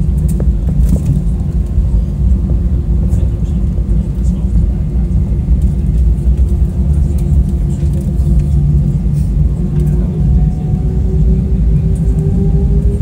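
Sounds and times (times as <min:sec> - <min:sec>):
airplane cabin engine rumble: 0:00.0 - 0:13.0
engine tone rising in pitch: 0:09.5 - 0:13.0.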